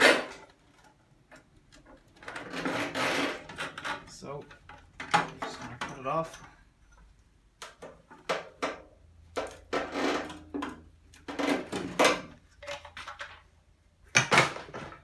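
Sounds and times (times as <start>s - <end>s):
hose scraping and knocking: 0.0s - 6.3s, 9.4s - 13.4s.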